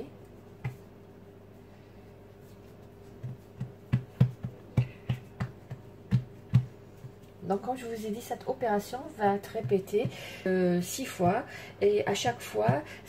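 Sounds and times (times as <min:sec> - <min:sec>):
hands patting dough: 0:00.2 - 0:01.0, 0:02.4 - 0:07.8, 0:08.4 - 0:11.5, 0:12.1 - 0:13.0.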